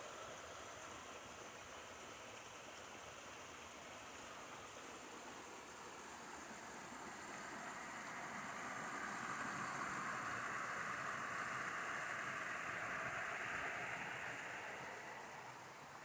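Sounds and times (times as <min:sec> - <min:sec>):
stream running over rocks: 0:00.0 - 0:16.0.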